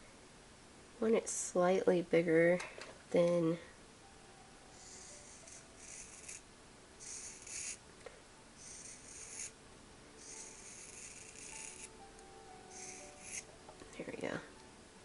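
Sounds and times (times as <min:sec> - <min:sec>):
tool scratching against paper: 0:04.8 - 0:06.4, 0:07.0 - 0:07.8, 0:08.6 - 0:09.5, 0:10.2 - 0:11.9, 0:12.7 - 0:13.5.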